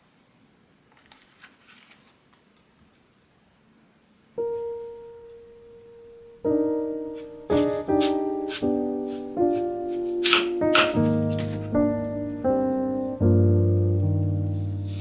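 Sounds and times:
solo piano music: 4.3 - 15.0.

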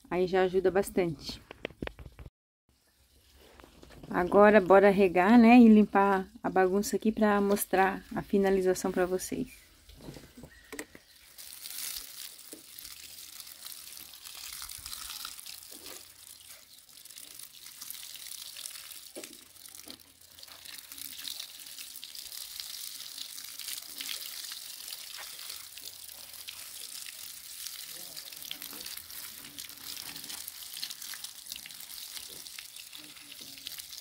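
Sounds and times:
water spraying on plants: 11.0 - 34.0.

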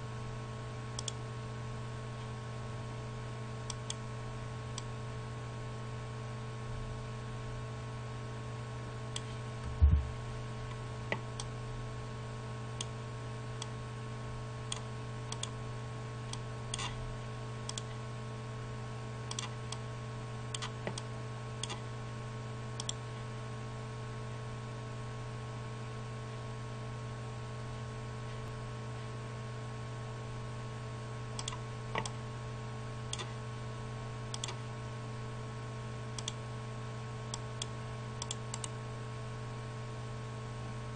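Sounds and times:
electrical hum: 0.0 - 40.9
computer mouse clicking: 1.0 - 1.2, 14.7 - 15.6, 19.3 - 19.8, 20.6 - 21.8, 31.4 - 32.1, 33.1 - 33.3, 34.3 - 34.6, 36.2 - 36.4, 37.3 - 38.7
loud thump: 9.6 - 10.4.

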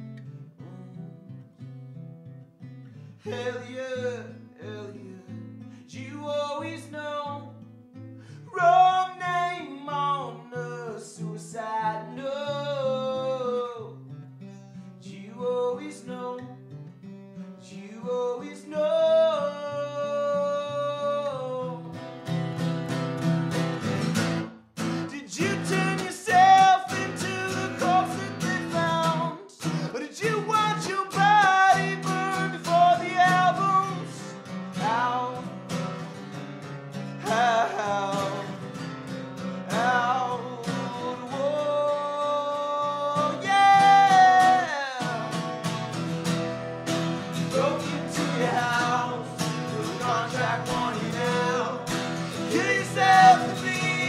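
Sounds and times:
acoustic guitar strumming: 0.0 - 54.0
man singing: 3.2 - 7.6, 8.4 - 14.0, 15.0 - 16.6, 17.7 - 22.0, 24.9 - 35.9, 37.0 - 38.9, 39.6 - 45.9, 47.2 - 54.0.

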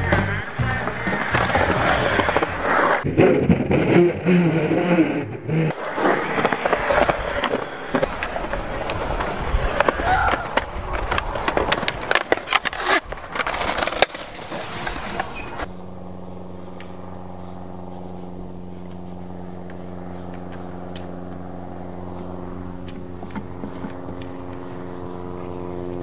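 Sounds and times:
skateboard clacks: 0.0 - 3.0, 5.7 - 15.7
skateboard wheels rolling on concrete: 0.0 - 3.1, 5.7 - 15.7, 18.8 - 26.0
steady hum of held tones: 0.0 - 3.1, 4.2 - 26.0.

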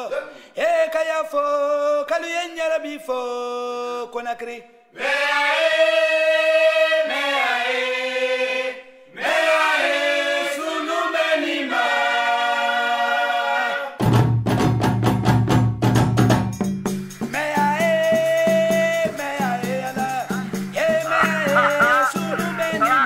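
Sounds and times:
group singing: 5.0 - 14.0, 19.1 - 23.0
drums and percussion: 14.0 - 23.0.

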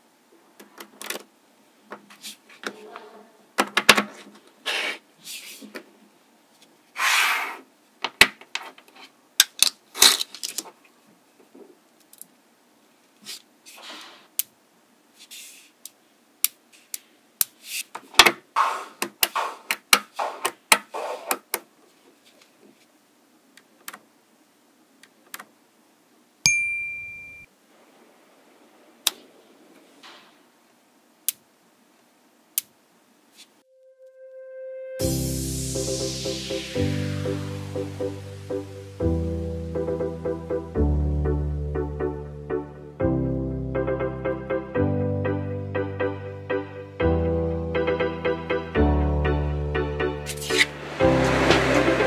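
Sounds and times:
ringing ding: 26.5 - 27.5.

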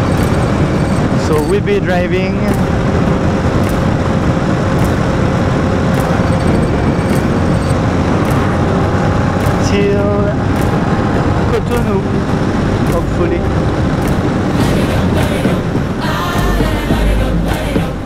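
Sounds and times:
motorcycle engine and road noise: 0.0 - 18.0
person speaking: 12.8 - 13.6.

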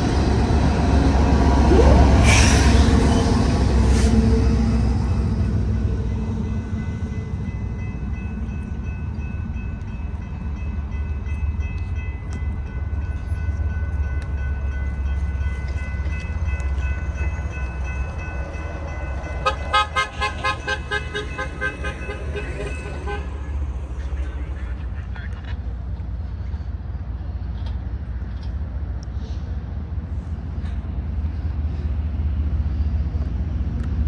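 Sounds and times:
quick pulsing siren tone: 1.6 - 2.8
distant locomotive horn: 19.2 - 25.2.

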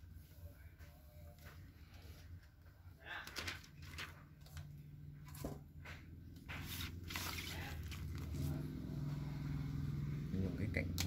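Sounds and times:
crackling plastic film handling: 3.2 - 5.5, 6.6 - 8.4.

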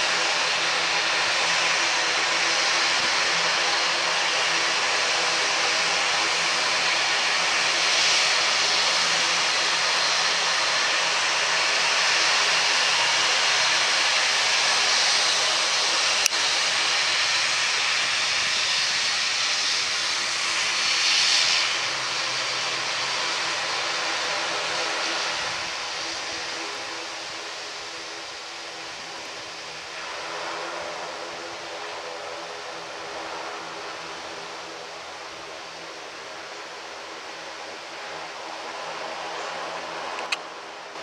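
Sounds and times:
turboprop engines whining: 0.0 - 41.0
sharp click: 40.2 - 40.5.

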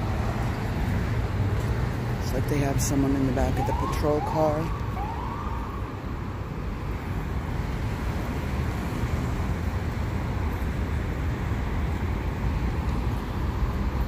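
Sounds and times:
street traffic rumble: 0.0 - 14.0.

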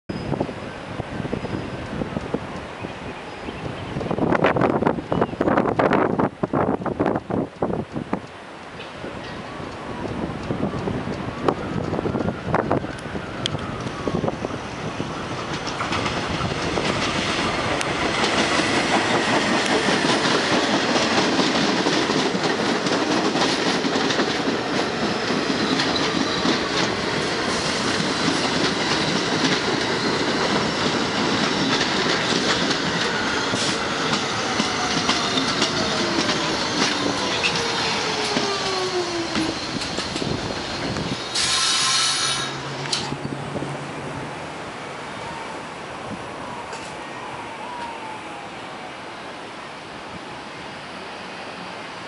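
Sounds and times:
subway train wheels rumbling: 0.1 - 52.0
clickety-clack over rail joints: 15.4 - 43.4
train motor whine: 32.9 - 43.7
wheel squeal: 34.7 - 43.2.

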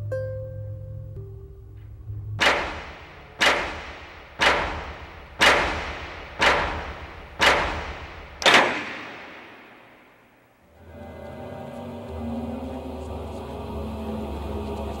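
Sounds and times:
heavy echoing impacts: 2.4 - 10.7.

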